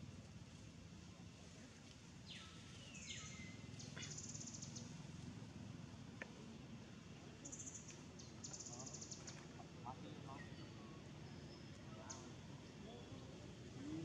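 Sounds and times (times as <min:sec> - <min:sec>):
faint bird calls: 0:02.3 - 0:05.0.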